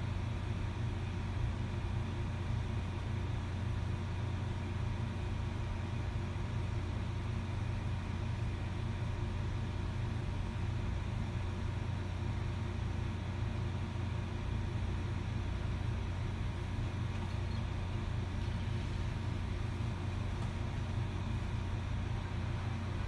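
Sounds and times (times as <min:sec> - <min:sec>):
helicopter rotor and engine drone: 0:00.0 - 0:23.0
faint whining tones: 0:06.5 - 0:23.0.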